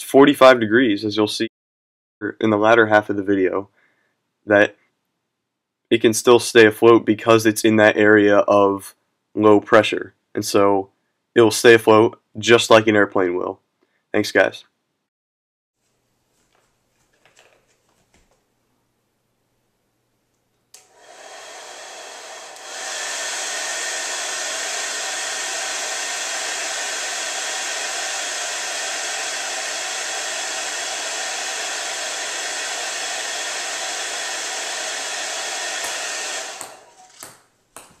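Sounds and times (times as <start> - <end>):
hair dryer blowing: 20.8 - 37.4.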